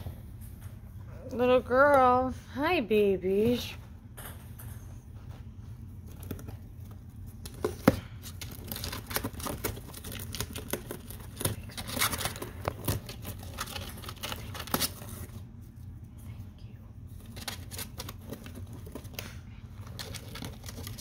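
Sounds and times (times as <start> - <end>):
rustling in paper bedding: 5.4 - 16.0, 17.2 - 21.0
cardboard tearing: 7.4 - 15.4, 19.8 - 21.0.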